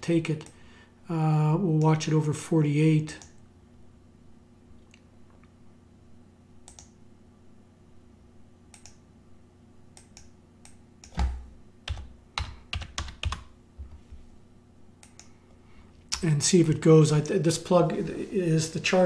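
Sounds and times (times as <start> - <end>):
low steady hum: 0.0 - 19.0
keyboard keystrokes: 11.0 - 13.5
faint clicks: 15.0 - 15.3.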